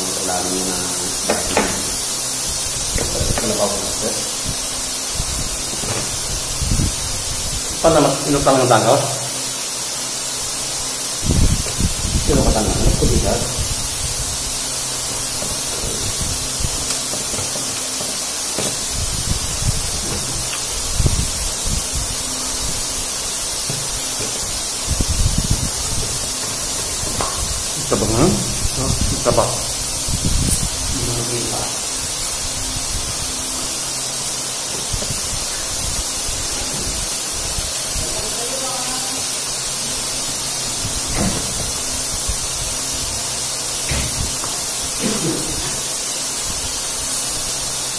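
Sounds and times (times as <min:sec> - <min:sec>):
background hiss: 0:00.0 - 0:47.9.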